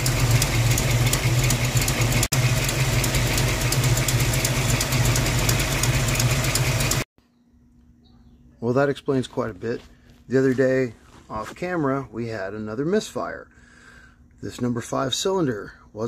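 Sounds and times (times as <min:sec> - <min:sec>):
rapid ticking of exhaust leak: 0:00.0 - 0:07.0
car engine idling: 0:00.0 - 0:07.1.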